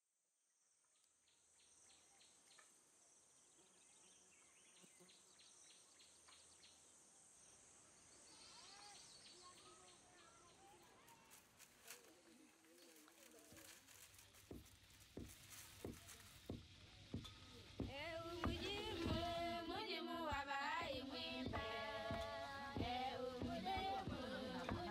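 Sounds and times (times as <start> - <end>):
insect drone: 0.2 - 10.6
birds chirping and trilling: 7.9 - 11.0.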